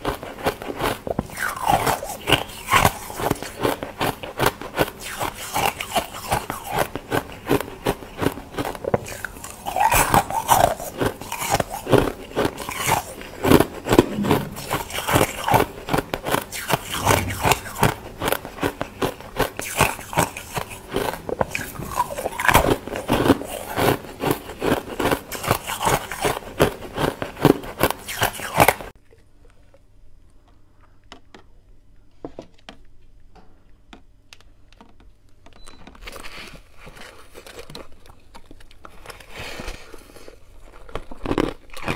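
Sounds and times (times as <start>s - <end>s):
chewing crunchy ice: 0.0s - 29.8s, 36.0s - 41.9s.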